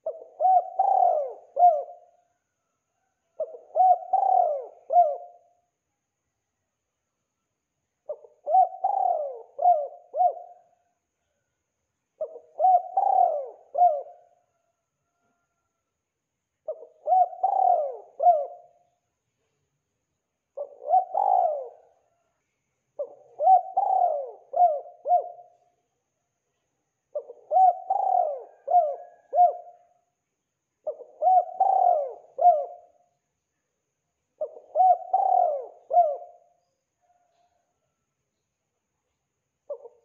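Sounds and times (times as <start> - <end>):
dove cooing: 0.0 - 2.2, 3.0 - 5.6, 8.0 - 10.9, 12.2 - 15.3, 16.6 - 19.0, 20.6 - 22.3, 23.0 - 25.7, 27.1 - 30.0, 30.8 - 33.1, 34.4 - 37.9, 39.7 - 40.0.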